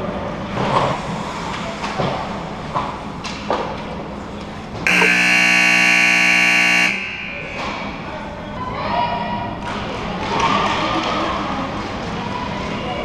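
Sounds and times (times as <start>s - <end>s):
scoreboard buzzer blast: 4.9s - 8.0s.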